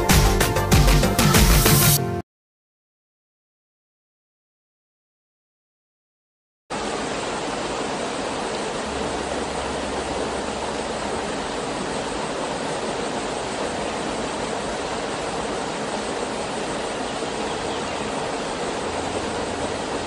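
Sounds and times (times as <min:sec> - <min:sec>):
waterfall rushing into pool: 0:06.7 - 0:20.0.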